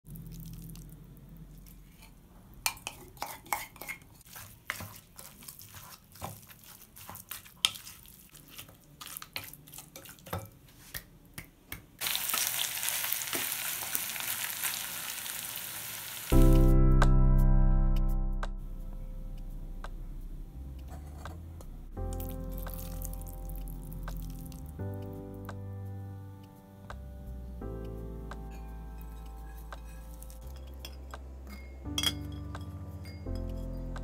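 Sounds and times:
meat sizzling in a pan: 12.0 - 16.4
wooden spoon scraping glass bowl: 29.0 - 31.0.

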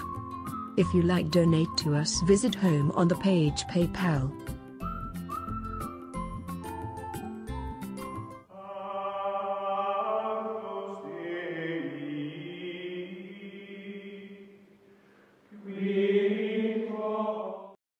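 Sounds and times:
choir-like chanting: 8.5 - 14.6, 15.5 - 17.8.

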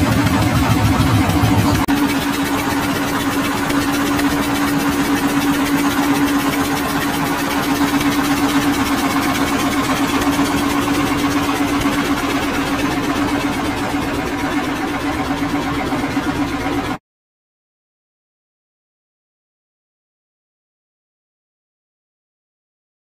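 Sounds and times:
motorboat engine chugging: 0.0 - 17.0
water wash: 0.0 - 17.0.

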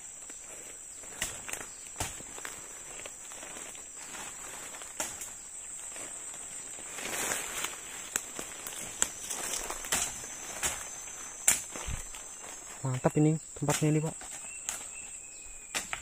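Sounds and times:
footsteps in undergrowth: 0.0 - 16.0
high-pitched insect drone: 0.0 - 16.0
rustling undergrowth: 0.0 - 16.0
twigs snapping: 1.0 - 5.4, 7.0 - 12.7, 13.6 - 16.0.

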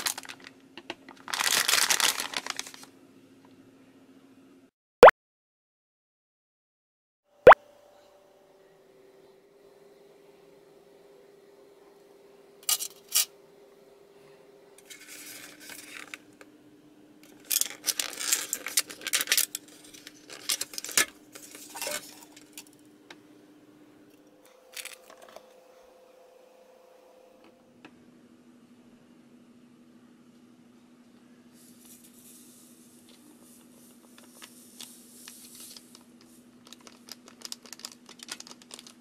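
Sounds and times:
plastic rustle: 0.0 - 2.9, 14.8 - 16.2, 17.3 - 22.4, 31.6 - 39.0.

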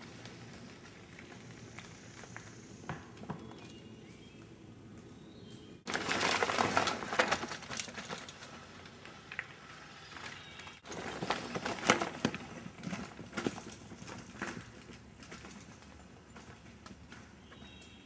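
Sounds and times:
bike tyres clattering on rock: 5.9 - 18.0.

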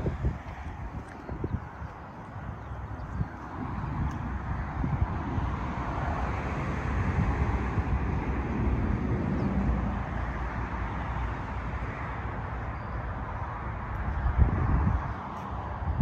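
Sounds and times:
distant road traffic hiss: 0.0 - 15.9
wind buffeting microphone: 0.0 - 16.0.

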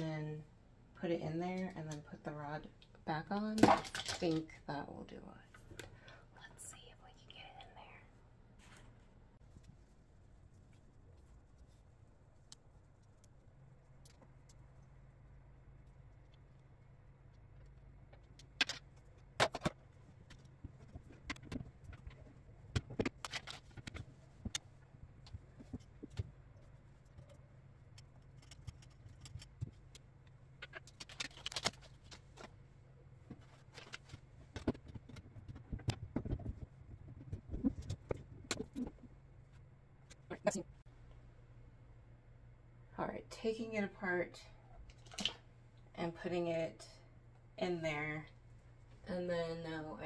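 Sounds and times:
low steady hum: 0.0 - 50.0
plastic clicks and clatter: 30.6 - 32.6.

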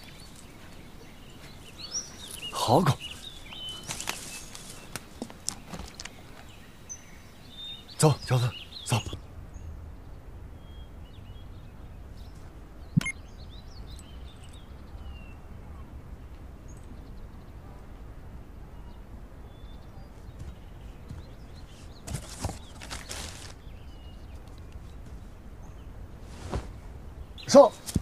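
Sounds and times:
faint bird chirps: 0.0 - 28.0
steady low rumble: 8.6 - 22.0.

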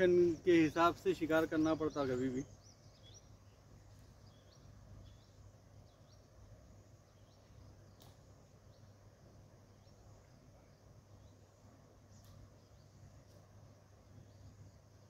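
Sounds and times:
low steady hum: 0.0 - 15.0
small bird chirps: 1.4 - 6.4
sharp click: 8.0 - 8.3.

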